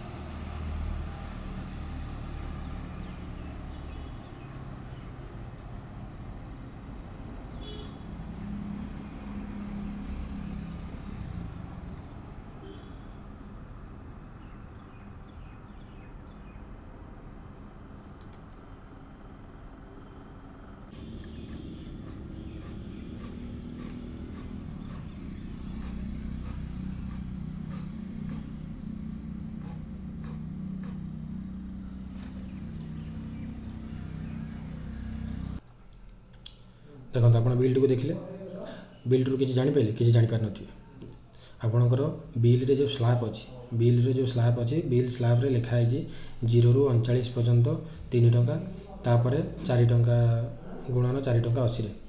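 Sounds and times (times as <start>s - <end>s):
passing vehicle engine hum: 0.0s - 18.0s, 18.6s - 35.6s
faint clicks: 18.0s - 18.6s.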